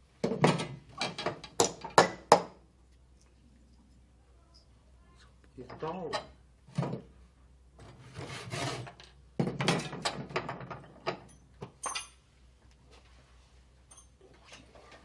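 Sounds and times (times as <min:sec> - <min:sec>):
hand tool rasping wood: 0:08.2 - 0:08.9.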